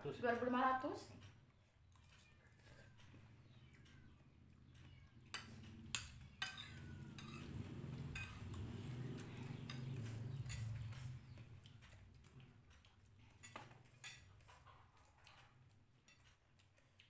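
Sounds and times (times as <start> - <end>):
spoons clinking on plates: 4.7 - 11.2, 13.3 - 14.6, 16.0 - 16.4.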